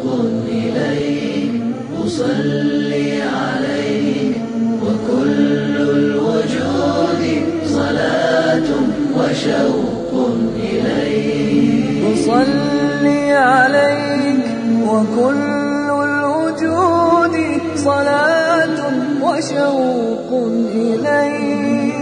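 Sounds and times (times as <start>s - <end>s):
group of voices chanting: 0.0s - 14.9s.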